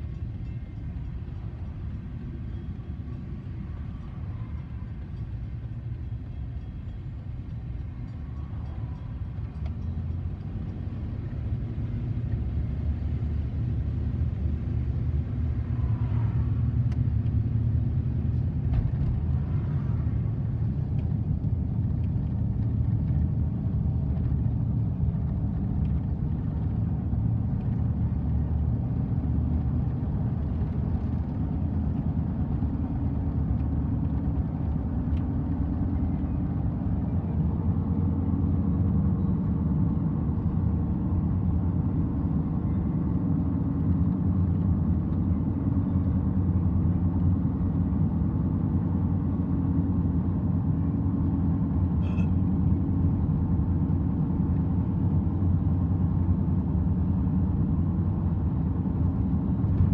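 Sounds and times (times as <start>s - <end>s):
car cabin road rumble: 0.0s - 59.9s.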